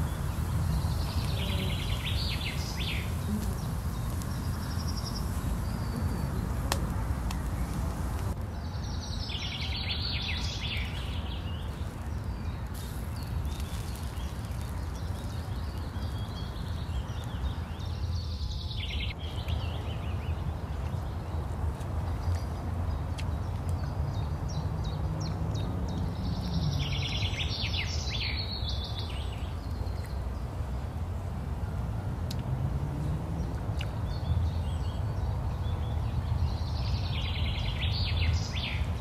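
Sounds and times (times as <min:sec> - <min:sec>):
songbird trilling: 0:00.0 - 0:08.2
low rumble and hiss: 0:00.0 - 0:25.0.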